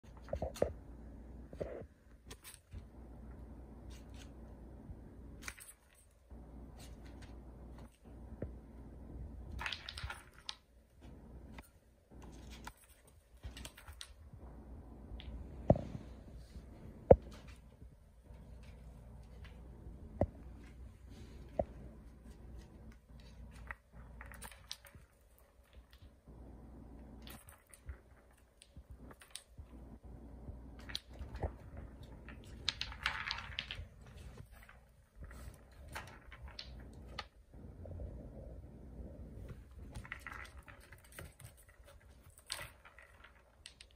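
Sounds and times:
kitten claws tapping and scraping: 0:00.0 - 0:08.6, 0:09.4 - 0:14.4, 0:17.0 - 0:26.3, 0:26.9 - 0:37.5, 0:39.4 - 0:43.9.

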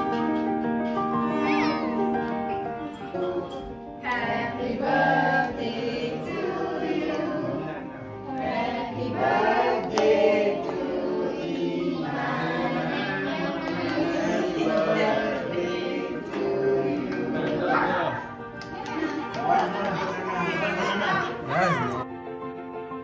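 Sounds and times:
several voices singing with music: 0:02.9 - 0:18.4.

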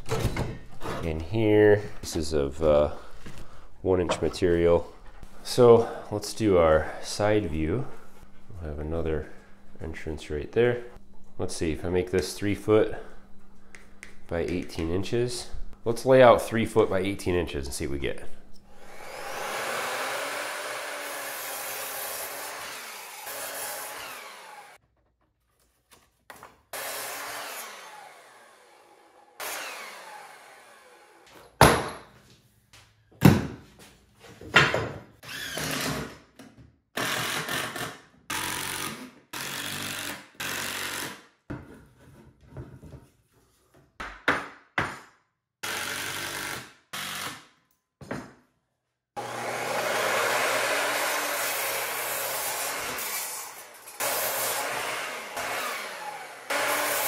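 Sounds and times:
miter saw cutting wood: 0:18.8 - 0:24.8, 0:26.8 - 0:31.3, 0:49.2 - 0:57.0.

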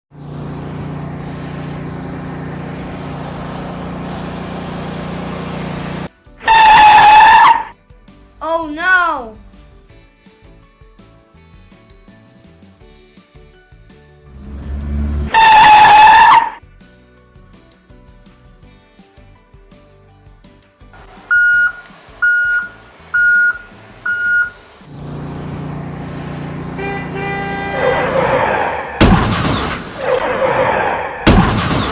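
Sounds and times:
truck engine running: 0:00.1 - 0:06.1, 0:21.0 - 0:31.9
light background music: 0:06.1 - 0:15.6, 0:16.6 - 0:24.9.

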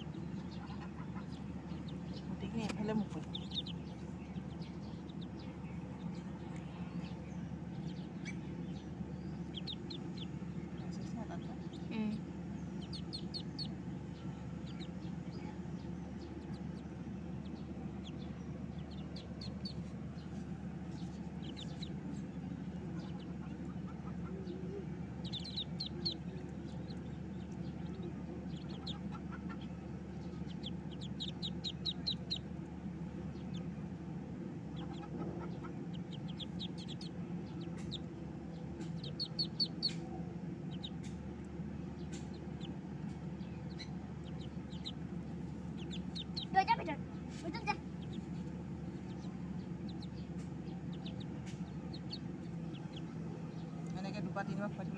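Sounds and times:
ducklings peeping: 0:00.0 - 0:54.9
steady low hum: 0:00.0 - 0:54.9.

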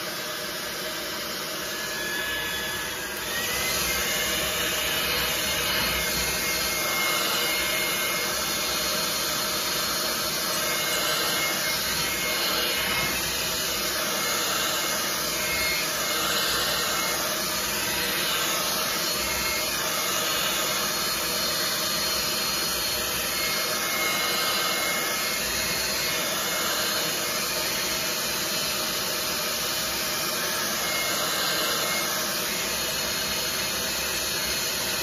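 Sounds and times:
hair dryer blowing: 0:00.0 - 0:35.0.

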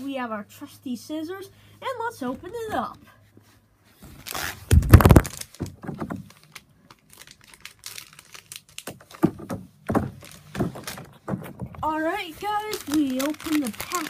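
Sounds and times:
plastic package crinkling: 0:04.2 - 0:11.2, 0:11.8 - 0:14.0.

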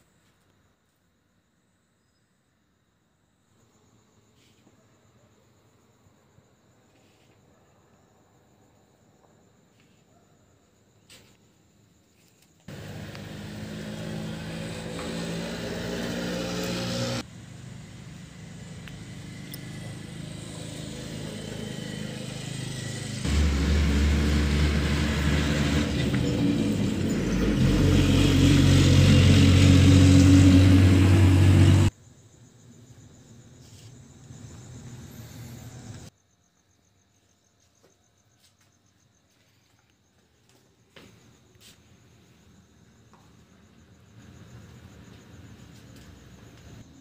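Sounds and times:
engine humming: 0:12.7 - 0:31.9.

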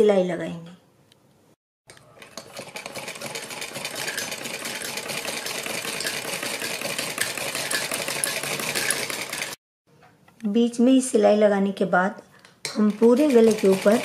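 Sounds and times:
sewing machine running: 0:02.2 - 0:09.6, 0:13.0 - 0:14.0.

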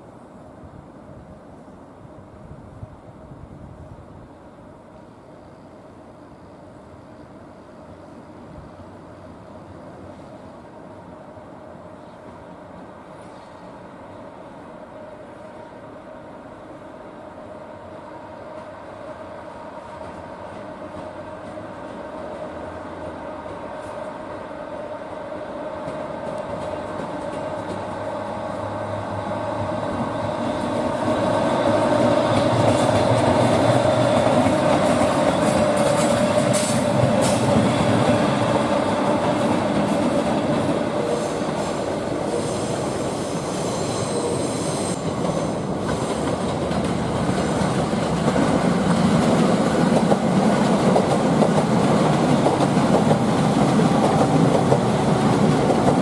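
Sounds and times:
electric locomotive hum: 0:00.0 - 0:56.0
wheels clicking over rail joints: 0:25.8 - 0:28.2, 0:32.0 - 0:40.7, 0:45.0 - 0:56.0.

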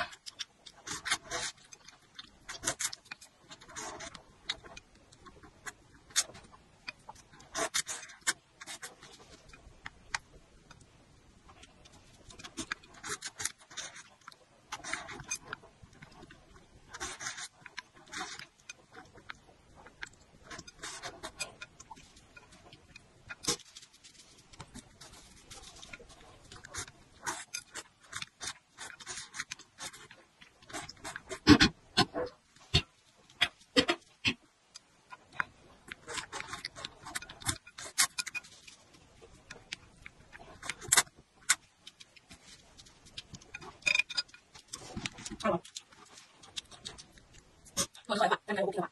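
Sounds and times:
wet chewing with mouth clicks: 0:00.0 - 0:48.1
wet chewing and lip smacks: 0:24.5 - 0:48.1.

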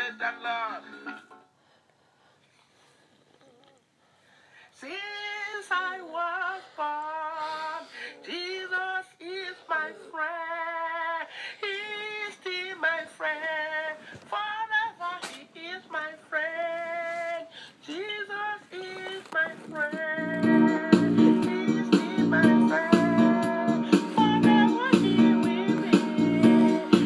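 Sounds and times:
woman singing solo: 0:20.0 - 0:27.0.

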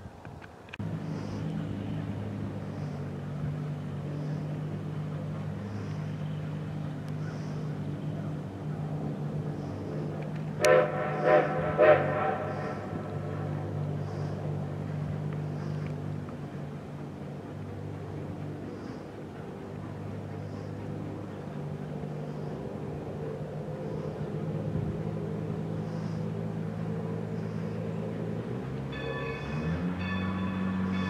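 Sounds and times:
steady low drone: 0:00.7 - 0:31.0
steam locomotive whistle: 0:10.6 - 0:13.6.

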